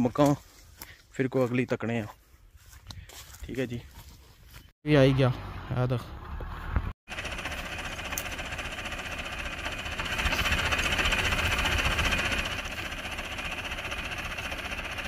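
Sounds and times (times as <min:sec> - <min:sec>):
tractor engine idling: 0:07.1 - 0:15.0.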